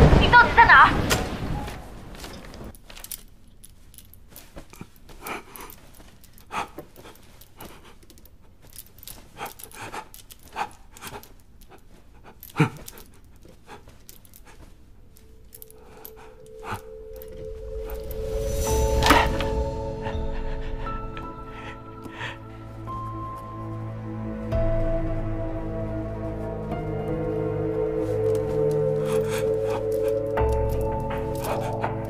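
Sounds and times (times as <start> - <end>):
handcuffs rattling against bed frame: 2.2 - 20.2, 27.3 - 32.0
panting breaths: 4.4 - 23.6, 26.8 - 32.0
steady low tone: 15.0 - 32.0.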